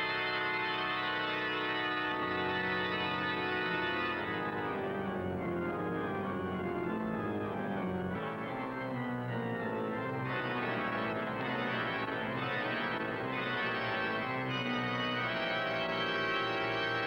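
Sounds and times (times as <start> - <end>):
organ playing sustained chords: 0.0 - 17.0.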